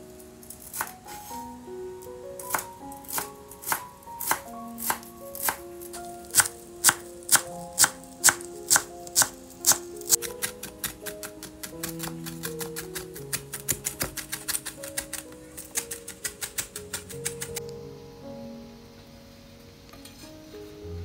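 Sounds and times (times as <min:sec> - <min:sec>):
soft melodic background music: 0:00.0 - 0:21.0
knife chopping food: 0:02.5 - 0:05.6, 0:06.3 - 0:17.5.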